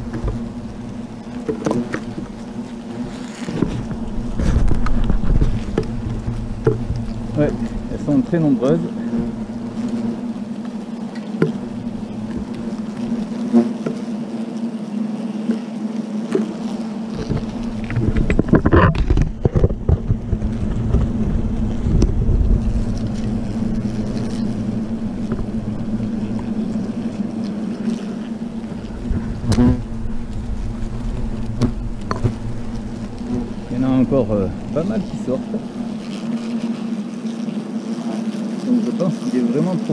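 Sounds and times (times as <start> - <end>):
hornets buzzing: 0.0 - 39.9
rustling and handling knocks: 1.2 - 7.9, 16.3 - 26.5, 27.2 - 36.0.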